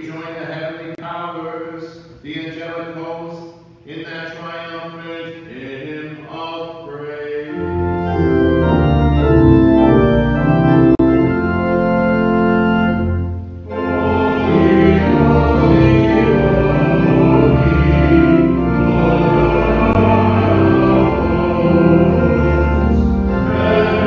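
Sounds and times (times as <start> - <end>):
church organ chords: 6.2 - 24.0
chanted voice: 13.7 - 24.0.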